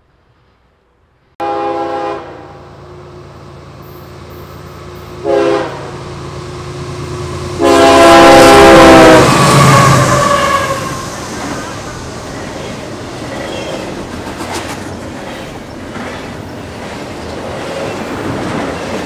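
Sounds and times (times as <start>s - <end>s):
train rumble: 0.0s - 19.0s
train air horn blasts: 1.4s - 2.7s, 5.2s - 6.1s, 7.5s - 11.2s.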